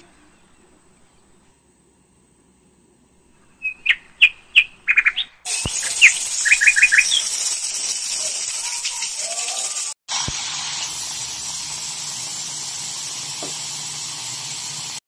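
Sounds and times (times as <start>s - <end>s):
small birds chirping: 3.5s - 7.5s
pressure cooker steam hissing: 5.5s - 15.0s.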